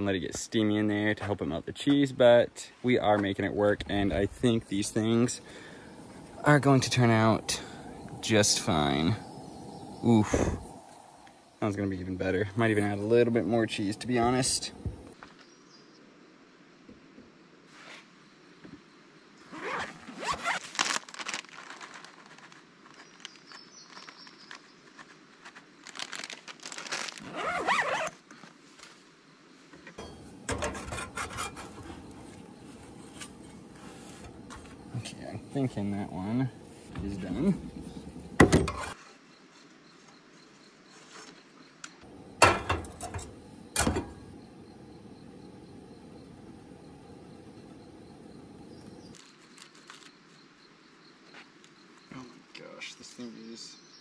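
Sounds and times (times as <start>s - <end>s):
plastic bag crinkling: 20.4s - 24.7s, 25.6s - 27.7s
cookware and spatula clattering: 30.0s - 31.8s, 42.4s - 44.2s.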